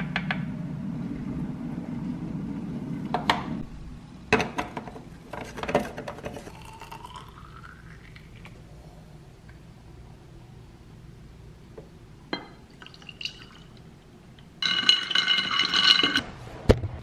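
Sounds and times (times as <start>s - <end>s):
low steady rush: 0.0s - 4.3s
water pouring into glass: 6.5s - 8.6s, 12.6s - 13.8s.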